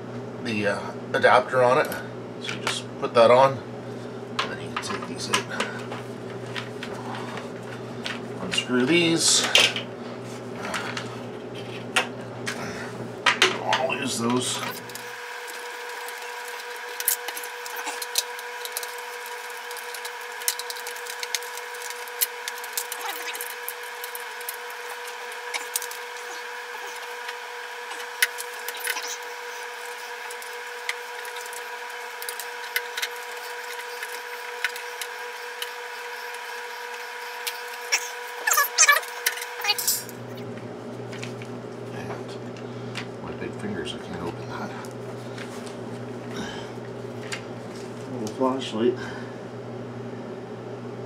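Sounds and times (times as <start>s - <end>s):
steady hum: 0.0s - 51.0s
louder clicks and squeaks: 27.9s - 30.5s.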